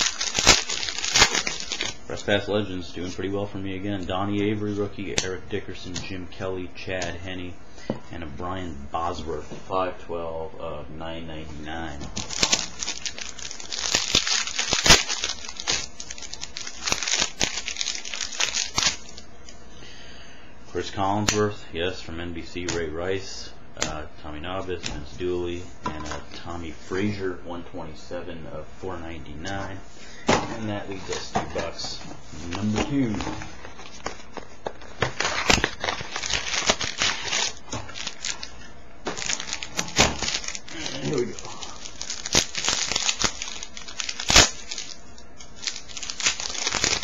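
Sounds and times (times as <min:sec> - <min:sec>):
foil wrapper crinkling: 0:00.0 - 0:02.0, 0:12.2 - 0:19.2, 0:32.5 - 0:47.0.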